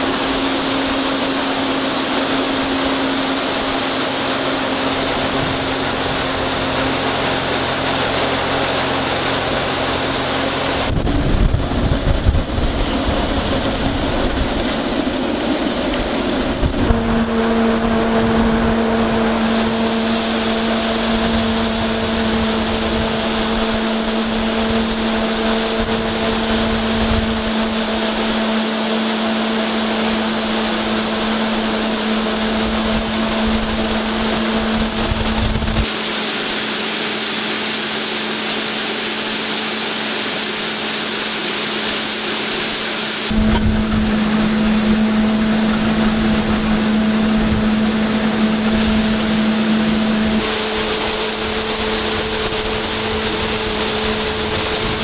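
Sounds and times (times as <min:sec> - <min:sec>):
wind on microphone: 0:00.0 - 0:35.9, 0:43.3 - 0:55.0
grain auger humming: 0:00.0 - 0:55.0
corn pouring into hopper: 0:18.3 - 0:55.0.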